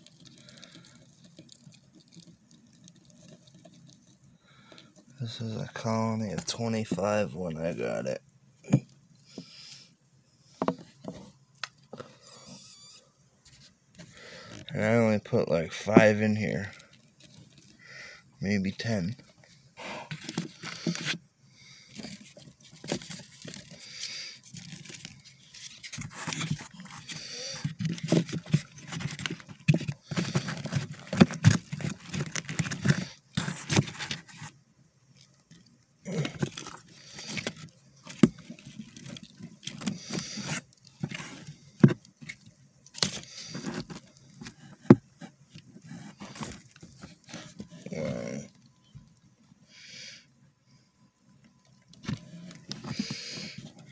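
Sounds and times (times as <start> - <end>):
bark and wood scraped by hand: 19.8 - 34.6, 36.1 - 42.4, 43.0 - 48.5.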